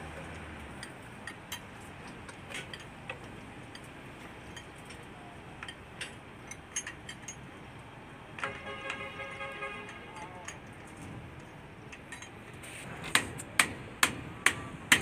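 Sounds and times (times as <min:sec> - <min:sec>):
construction site noise: 0:00.0 - 0:15.0
light clicks and clinks: 0:00.3 - 0:07.5, 0:09.8 - 0:12.4.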